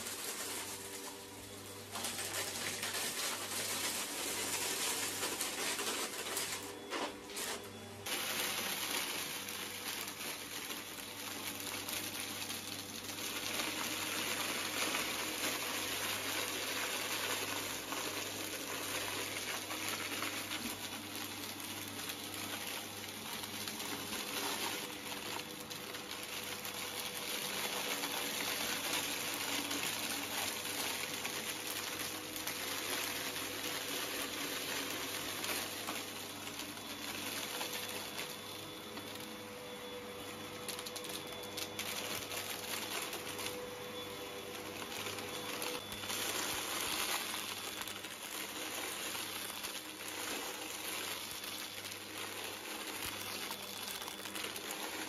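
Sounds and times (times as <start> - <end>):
vacuum cleaner running: 0.0 - 55.0
grit crackling up nozzle: 40.6 - 55.0.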